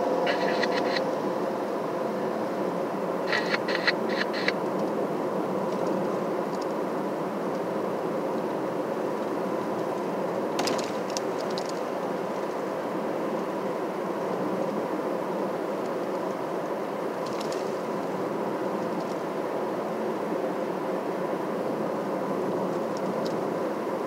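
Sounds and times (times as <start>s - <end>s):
car road and engine noise: 0.0s - 24.0s
faint hum: 0.0s - 24.0s.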